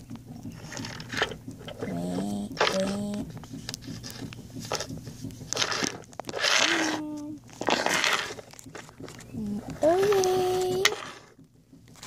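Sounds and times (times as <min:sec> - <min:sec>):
child humming: 0:01.8 - 0:03.3, 0:06.6 - 0:07.4, 0:09.4 - 0:11.0.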